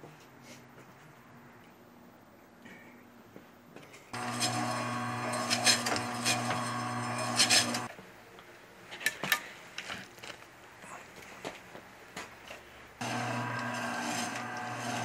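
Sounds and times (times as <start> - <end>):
meat slicer motor hum: 4.2 - 7.9, 13.0 - 15.0
blade scraping through meat: 5.3 - 7.9.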